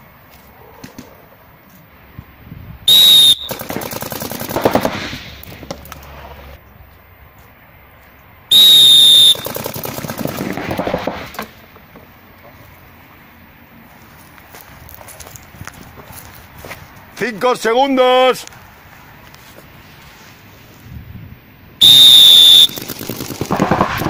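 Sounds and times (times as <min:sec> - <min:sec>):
rapid paintball marker fire: 0:03.0 - 0:06.1, 0:08.9 - 0:11.4, 0:21.8 - 0:24.0.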